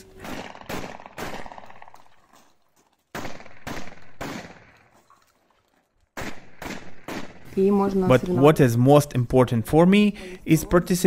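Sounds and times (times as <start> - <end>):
gunshots with echo: 0.0 - 2.2, 3.1 - 4.9, 6.2 - 7.6.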